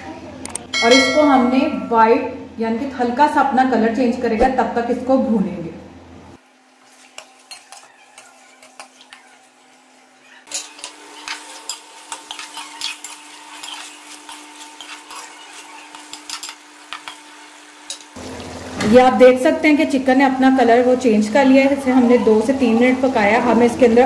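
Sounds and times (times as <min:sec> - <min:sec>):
oil sizzling: 0:06.4 - 0:24.0.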